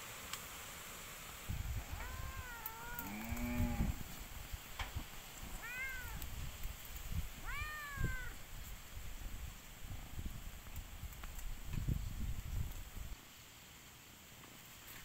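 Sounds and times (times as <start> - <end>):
high arching animal calls: 1.8 - 4.0, 7.4 - 8.4
lower-pitched animal call: 1.8 - 4.0, 7.4 - 8.4.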